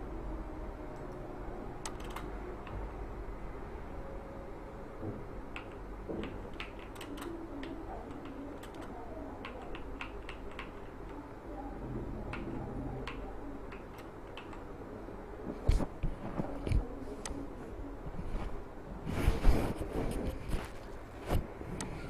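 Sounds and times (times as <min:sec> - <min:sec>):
steady low hum: 0:00.0 - 0:22.0
keyboard keys clicking: 0:01.8 - 0:02.8, 0:05.5 - 0:11.2, 0:12.3 - 0:14.7.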